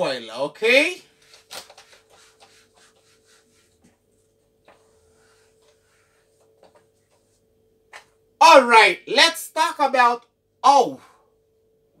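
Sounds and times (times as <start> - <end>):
eraser rubbing on whiteboard: 1.2 - 7.4.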